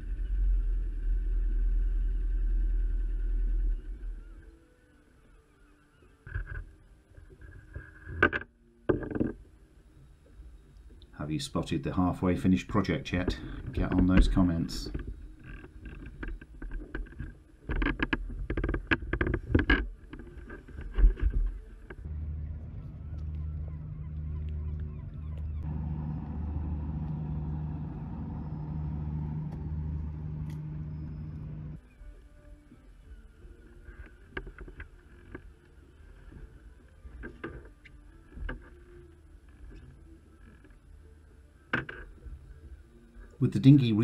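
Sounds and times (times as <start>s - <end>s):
steady low hum: 0.0s - 6.4s, 9.4s - 43.7s
wind: 0.0s - 44.0s
water lapping: 21.6s - 31.8s.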